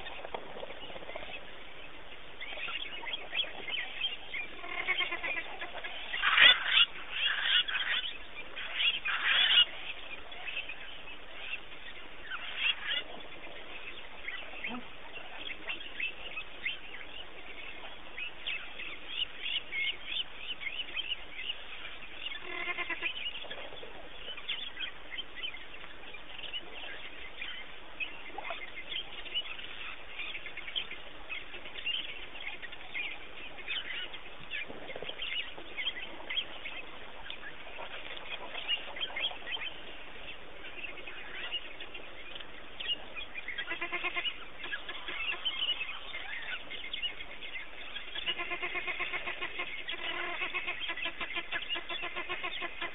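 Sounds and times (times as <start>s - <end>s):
wild dogs chirping: 0.0s - 52.9s.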